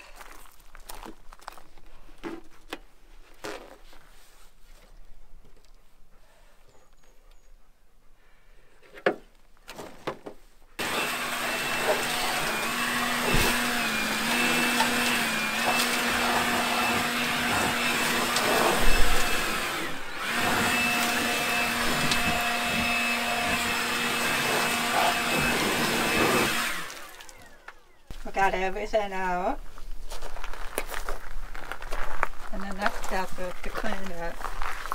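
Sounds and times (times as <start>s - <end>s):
shop vacuum whining: 10.8s - 28.1s.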